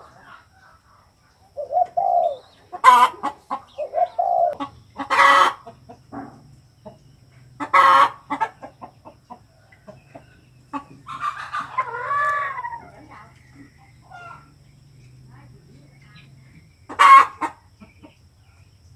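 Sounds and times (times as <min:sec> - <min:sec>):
dove cooing: 0:01.5 - 0:05.6, 0:10.7 - 0:13.1
chickens squawking: 0:01.5 - 0:06.2, 0:06.8 - 0:14.7, 0:16.8 - 0:18.2.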